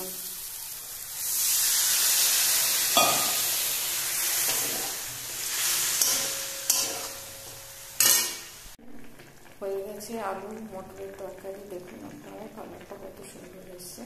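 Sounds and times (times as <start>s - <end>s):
water sizzling in hot oil: 0.0s - 14.0s
spoon clinking against pot: 3.0s - 3.4s.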